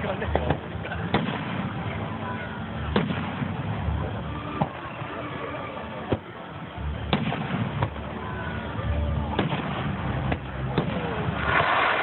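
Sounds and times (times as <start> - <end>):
firework shells bursting: 10.7 - 12.0.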